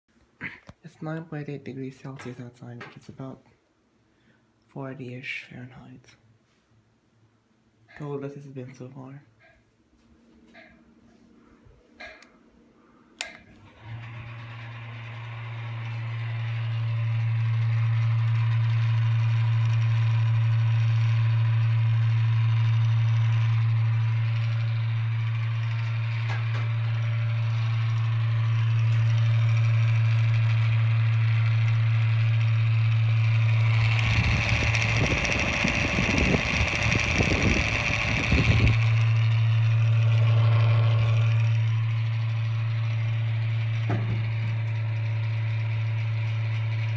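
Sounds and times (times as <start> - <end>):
exhaust fan motor humming: 7.9 - 46.9
fan switch click: 13.2 - 13.6
rushing rumbling noise: 33.6 - 45.7.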